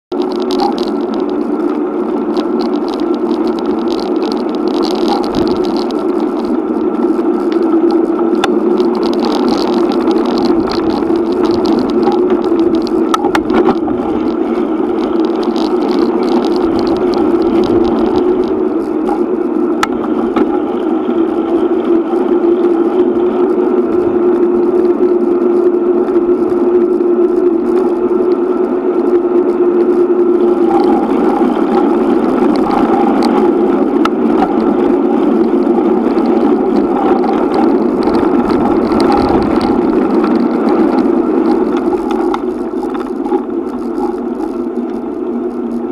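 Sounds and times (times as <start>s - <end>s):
bicycle rattling over bumps: 0.1s - 45.9s
bicycle tyres on pavement: 0.1s - 45.9s.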